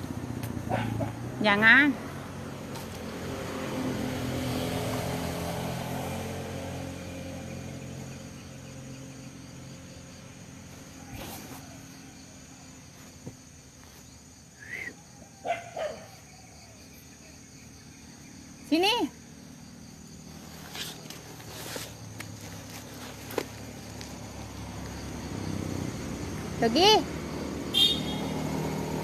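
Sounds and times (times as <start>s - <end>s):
vehicle driving past: 0.0s - 10.1s, 23.6s - 29.0s
insects chirring: 0.0s - 29.0s.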